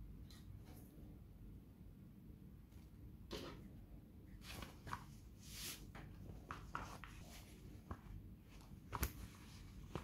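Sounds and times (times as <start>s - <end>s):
cloth rustling: 4.4s - 10.0s.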